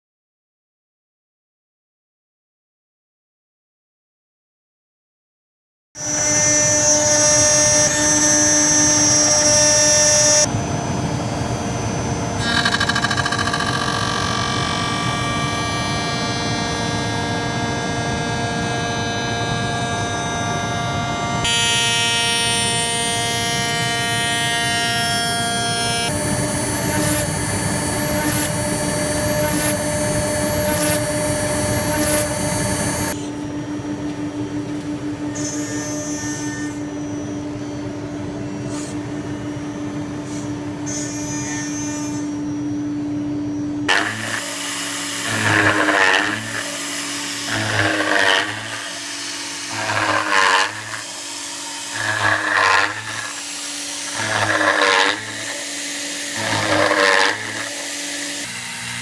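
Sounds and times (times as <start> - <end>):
spindle motor whining: 11.8 - 58.9.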